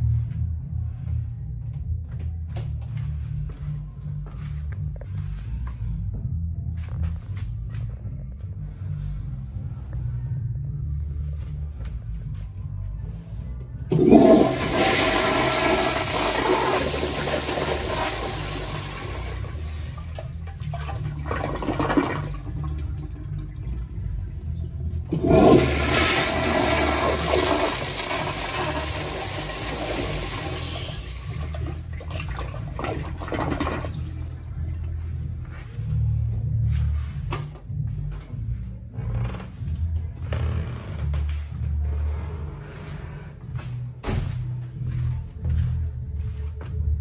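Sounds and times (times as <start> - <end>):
toilet flushing: 13.9 - 24.3, 25.0 - 34.5.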